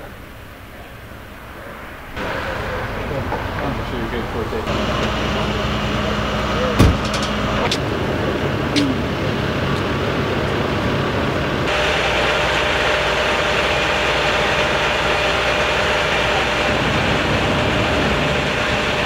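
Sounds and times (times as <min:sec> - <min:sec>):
steady hum: 0:00.0 - 0:19.0
vehicle engine idling: 0:00.0 - 0:19.0.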